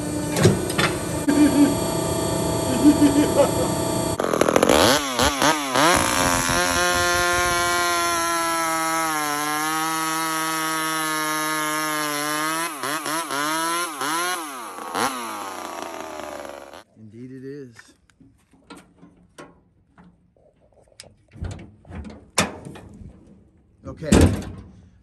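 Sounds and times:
chainsaw cutting through log: 1.0 - 16.9.

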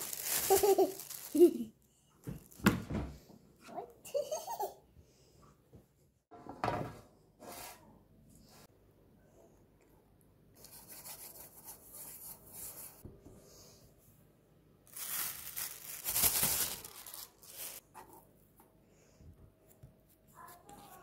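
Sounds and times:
plastic wrap crinkling: 0.0 - 1.7, 14.9 - 17.8.

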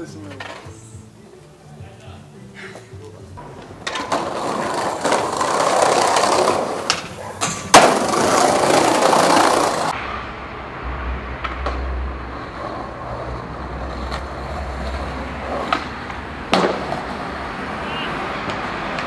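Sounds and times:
skateboard wheels rolling on pavement: 0.0 - 19.0
low vehicle rumble: 9.0 - 19.0.

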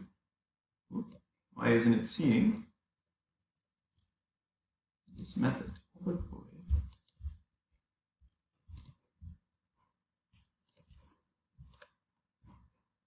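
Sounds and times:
computer mouse clicking: 1.0 - 1.3, 2.1 - 2.6, 5.0 - 5.4, 6.8 - 7.2, 8.7 - 9.1, 10.6 - 12.0.

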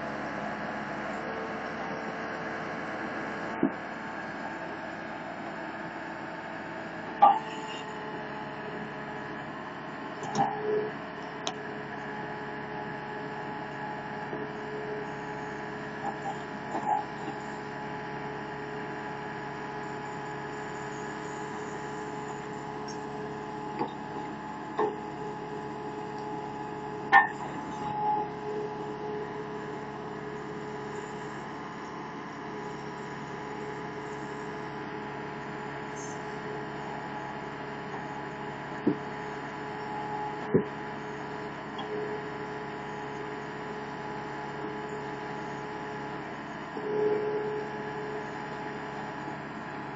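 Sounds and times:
loader engine humming: 0.0 - 49.9
backhoe clanks and knocks: 3.4 - 3.9, 7.2 - 7.8, 10.2 - 10.7, 15.8 - 17.5, 21.0 - 28.6, 37.8 - 42.0.

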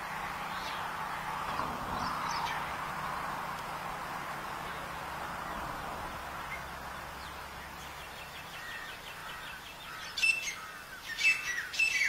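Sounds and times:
steady background hiss: 0.0 - 12.0
francolin call: 8.1 - 12.0.

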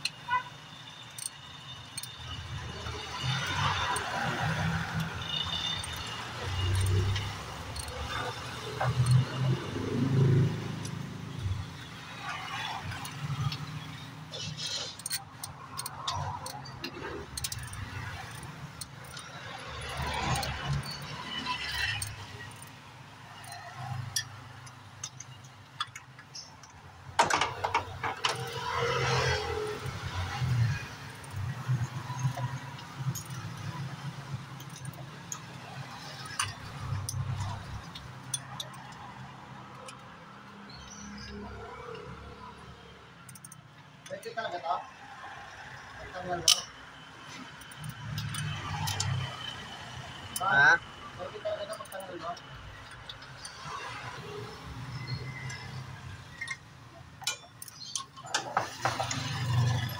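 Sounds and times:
metal tools clinking: 0.0 - 59.9
sharp clicks: 10.8 - 22.8.

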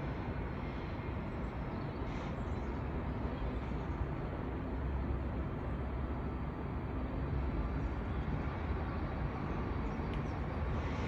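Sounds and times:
city background rumble: 0.0 - 11.0.

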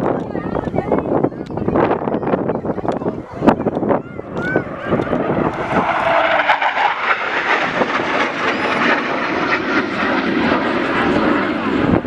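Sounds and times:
fighter jet flying past: 3.2 - 12.0.

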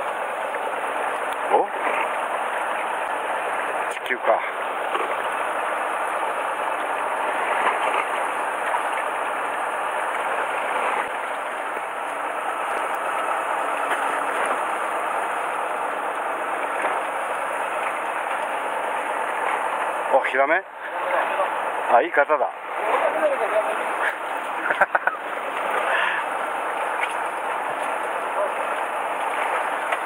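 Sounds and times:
boat engine drone: 0.0 - 30.0.

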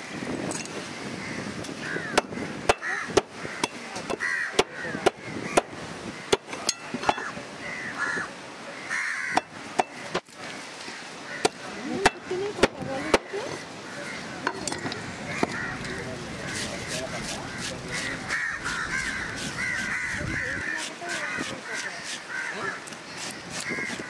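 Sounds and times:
crows cawing: 0.0 - 24.0
knife scraping fish scales: 16.4 - 24.0.

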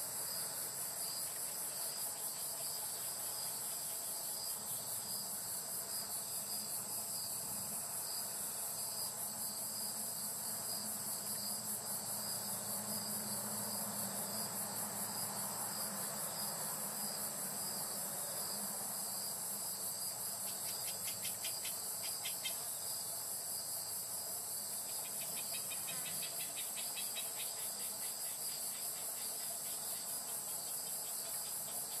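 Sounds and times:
insects singing: 20.2 - 23.1, 24.6 - 32.0.

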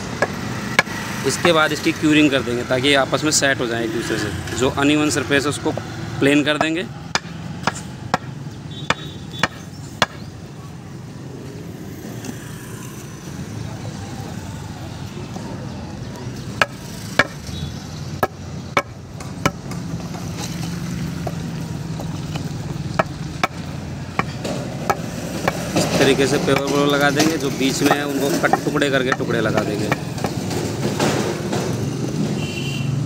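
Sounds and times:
concrete blocks knocking together: 16.6 - 17.4, 18.2 - 31.8.

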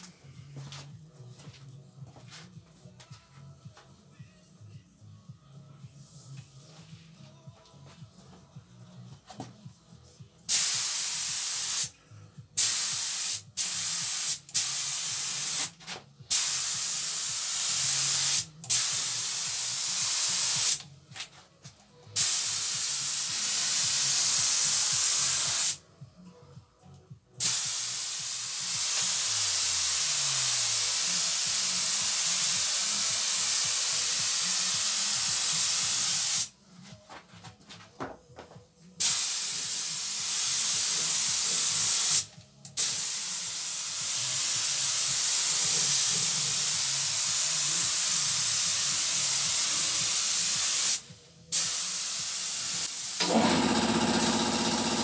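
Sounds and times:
spray gun hissing: 10.5 - 11.9, 12.6 - 15.7, 16.3 - 20.8, 22.2 - 25.8, 27.4 - 36.5, 39.0 - 53.4.

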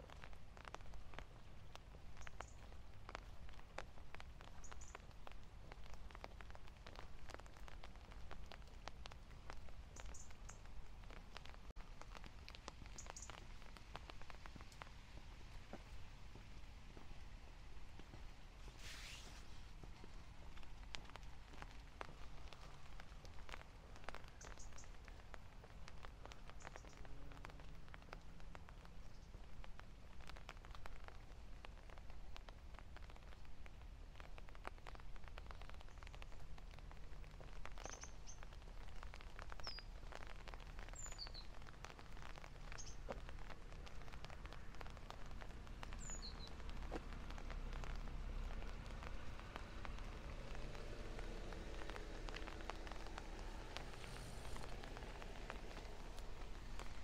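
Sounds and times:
light rain pattering: 0.0 - 57.0
bird chirps: 46.0 - 46.5.

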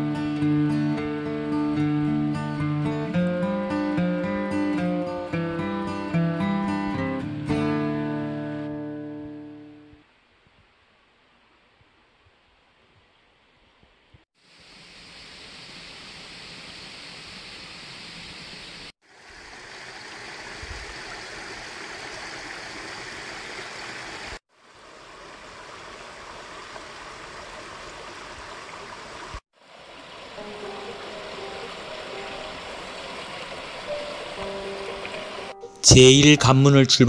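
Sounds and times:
mountain stream rushing: 14.5 - 36.0
soft music notes: 30.4 - 33.2, 33.8 - 37.0.

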